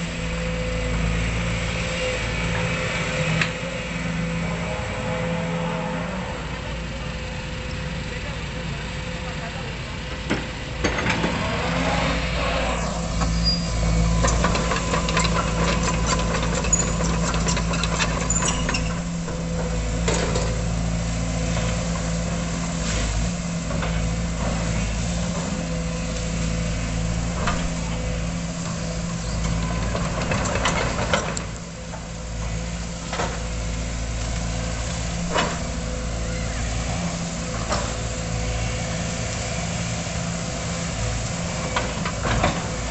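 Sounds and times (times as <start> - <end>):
excavator diesel engine running: 0.0 - 42.9
metal knocks and clanks: 13.1 - 20.7.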